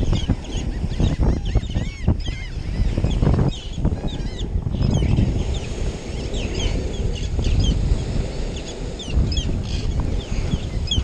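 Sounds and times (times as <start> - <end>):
birds chirping: 0.0 - 11.0
wind and surf rumble: 0.0 - 11.0.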